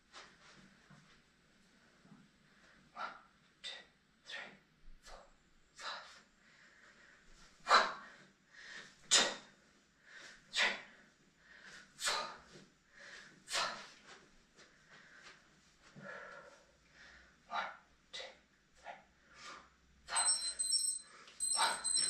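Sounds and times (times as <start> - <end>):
person breathing hard: 5.8 - 18.4.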